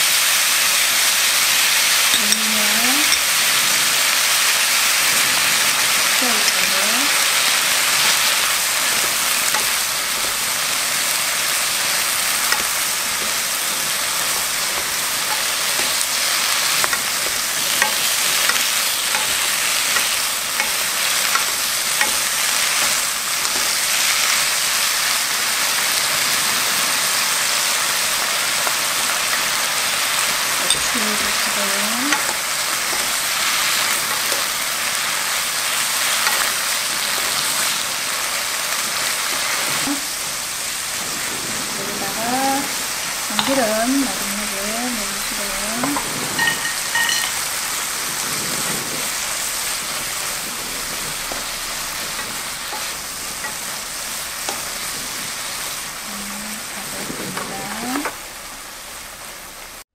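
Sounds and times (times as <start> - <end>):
stems sizzling in oil: 0.0 - 59.9
wooden spatulas clicking on pan: 6.2 - 24.5, 28.4 - 37.8.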